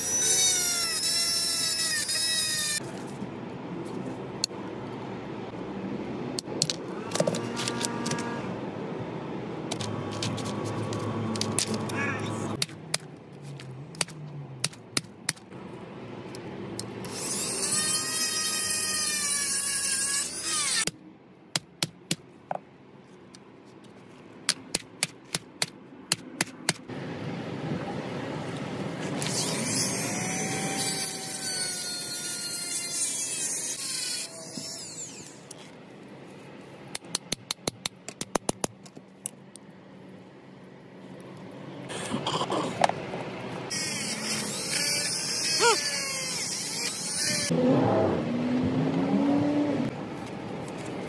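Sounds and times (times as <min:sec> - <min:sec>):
small power tool running: 0:29.2 - 0:35.4, 0:43.7 - 0:47.5.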